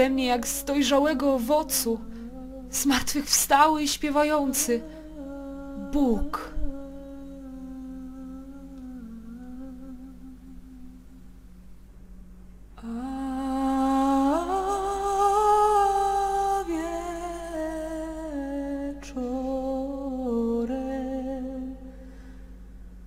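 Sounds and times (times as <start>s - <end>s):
woman humming: 0.0s - 11.3s, 12.8s - 22.0s
low drone: 12.8s - 22.6s.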